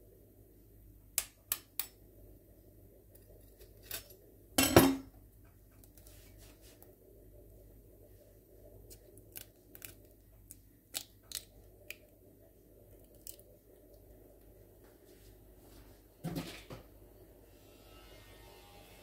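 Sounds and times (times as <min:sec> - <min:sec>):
egg shell cracking: 0:08.8 - 0:12.2, 0:13.0 - 0:14.0.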